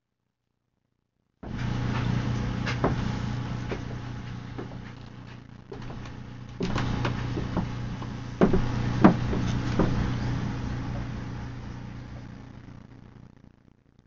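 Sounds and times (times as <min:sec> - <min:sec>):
steady low hum: 0:01.4 - 0:14.0
knocks and taps on glass tank: 0:08.4 - 0:10.1.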